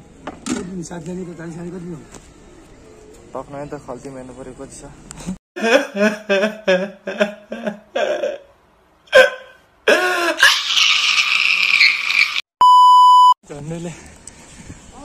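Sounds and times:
loud high beep: 0:12.6 - 0:13.4.

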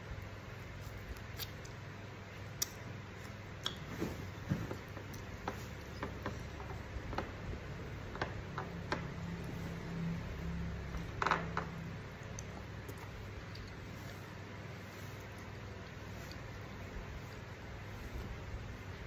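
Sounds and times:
wet chewing clicks and smacks: 0:00.9 - 0:01.9.

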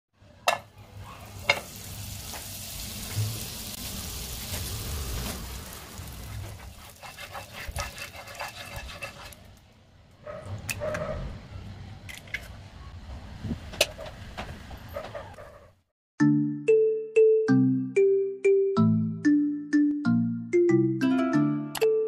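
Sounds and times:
butter sizzling in frying pan: 0:01.2 - 0:09.4
spatula scraping a pan: 0:06.0 - 0:09.5.

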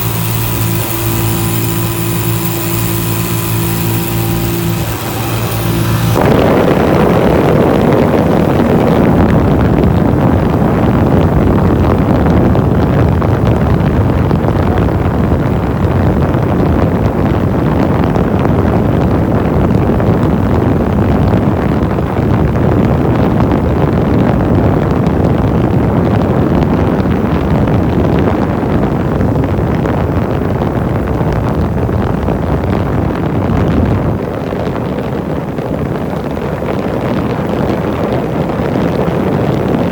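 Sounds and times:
motorcycle engine: 0:00.0 - 0:10.0
wind rushing on microphone: 0:03.7 - 0:39.9.

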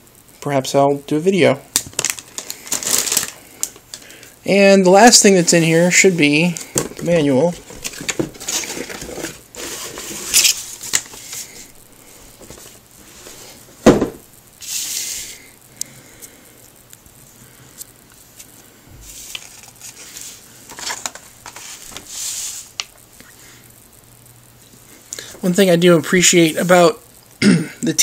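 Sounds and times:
pages flipping: 0:01.8 - 0:04.0, 0:05.8 - 0:11.6, 0:17.8 - 0:23.0
paper and cardboard rustling: 0:01.9 - 0:03.4, 0:05.0 - 0:11.7, 0:19.0 - 0:22.7.

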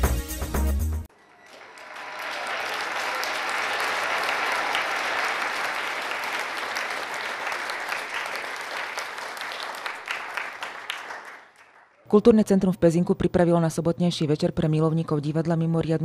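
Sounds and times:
audience applauding: 0:01.1 - 0:12.1.

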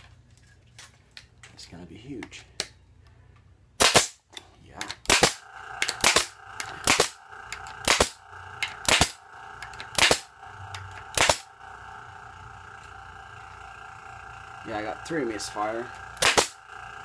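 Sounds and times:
steady hum: 0:01.8 - 0:17.0
brad nailer firing: 0:03.8 - 0:04.2, 0:05.0 - 0:11.6, 0:16.2 - 0:16.7.

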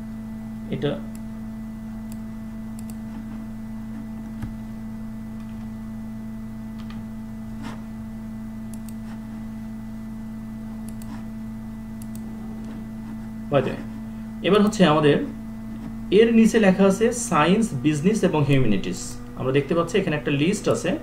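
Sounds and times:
steady electrical hum: 0:00.0 - 0:21.0
keyboard and mouse clicks: 0:02.8 - 0:03.0, 0:08.7 - 0:09.2, 0:10.8 - 0:11.2, 0:12.0 - 0:12.8.

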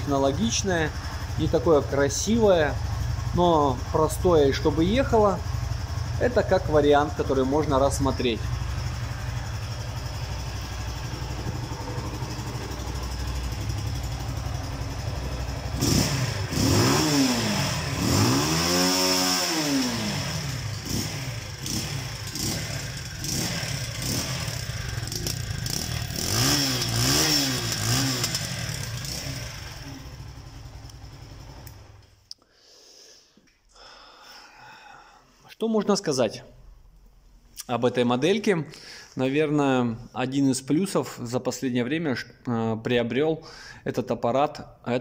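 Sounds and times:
motorcycle engine idling and revving: 0:00.0 - 0:32.3.

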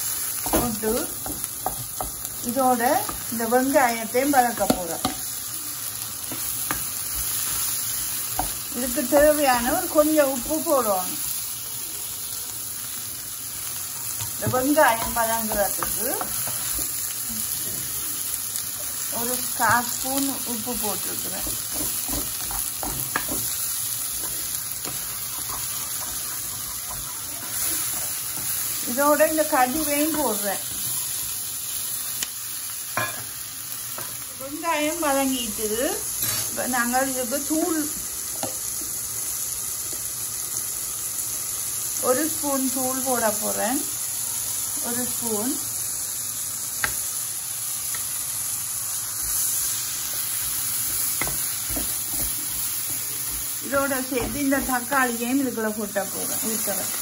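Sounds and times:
onions sizzling in frying pan: 0:00.0 - 0:57.0
spatula scraping pan: 0:19.3 - 0:31.2.

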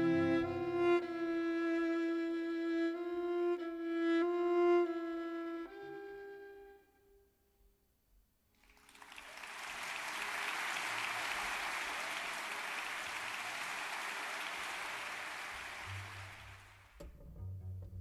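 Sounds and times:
audience applauding: 0:08.6 - 0:17.0.

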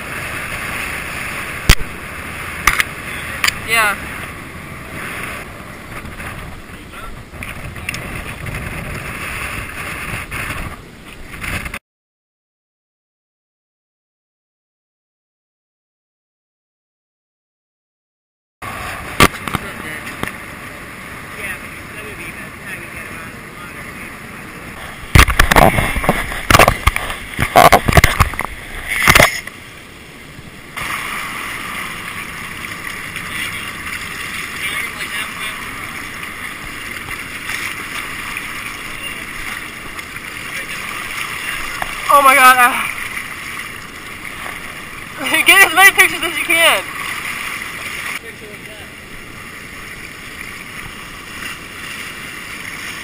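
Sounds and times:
wind rushing over microphone: 0:00.0 - 0:11.8, 0:22.9 - 0:45.2
wash of water: 0:18.6 - 0:53.0
fish splashing in water: 0:30.8 - 0:42.1, 0:46.8 - 0:48.2.

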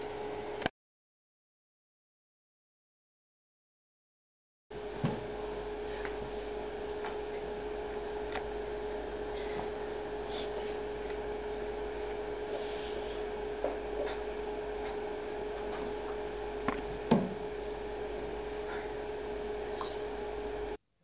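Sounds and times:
steady room hum: 0:00.0 - 0:00.7, 0:04.7 - 0:20.8.

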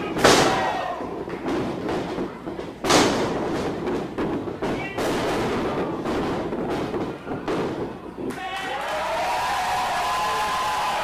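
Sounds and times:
crowd shouts: 0:00.0 - 0:01.2, 0:08.3 - 0:11.0
crowd din: 0:00.0 - 0:11.0.

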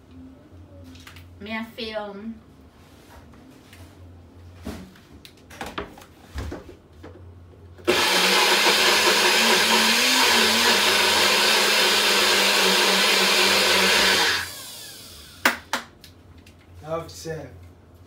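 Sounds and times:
blender running: 0:07.8 - 0:15.5.

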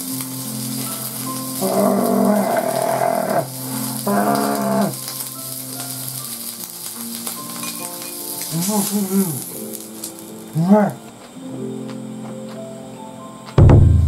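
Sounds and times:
meat sizzling on grill: 0:00.0 - 0:11.3
long low tones: 0:13.6 - 0:14.0.

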